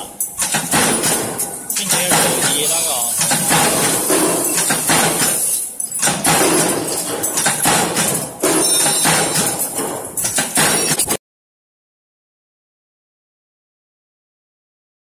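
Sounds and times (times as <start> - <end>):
punch press metallic clanks: 0.0 - 11.2.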